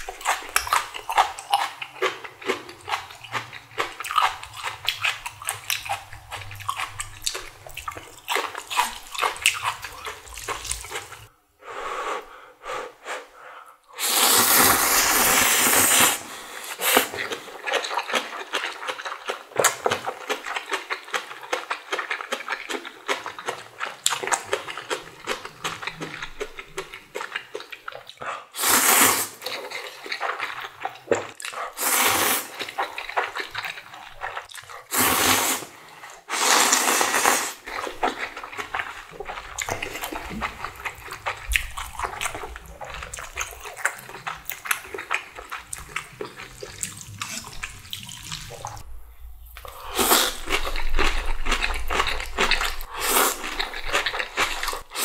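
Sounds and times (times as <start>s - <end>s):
wet chewing: 0.0s - 11.3s, 16.8s - 28.5s, 29.4s - 35.2s, 36.0s - 55.0s
person slurping noodles: 14.0s - 18.1s, 28.3s - 48.8s, 49.6s - 55.0s.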